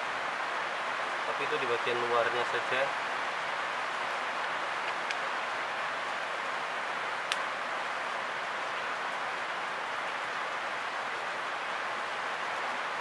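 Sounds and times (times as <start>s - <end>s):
rain falling: 0.0s - 13.0s
faint clicks: 4.8s - 5.2s, 7.2s - 7.5s.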